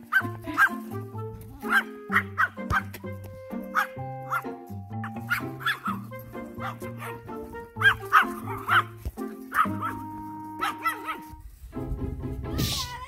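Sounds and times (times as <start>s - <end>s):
background music: 0.0s - 13.0s
small dog yapping: 5.2s - 6.0s, 7.8s - 8.9s, 9.5s - 10.0s, 10.6s - 11.3s.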